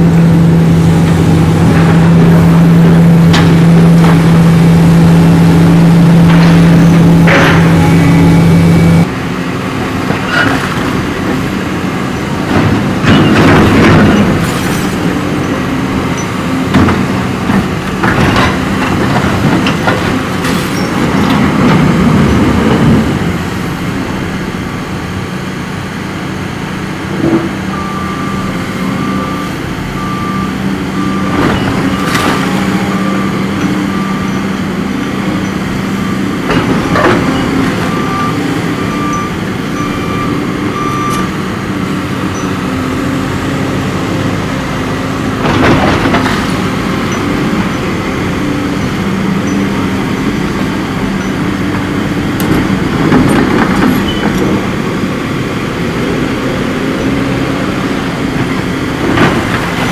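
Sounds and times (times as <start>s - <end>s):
excavator diesel engine under load: 0.0s - 59.9s
reversing alarm beeping: 6.9s - 9.1s, 27.7s - 34.6s, 35.4s - 41.4s
falling masonry crashing: 31.3s - 33.4s, 59.1s - 59.9s.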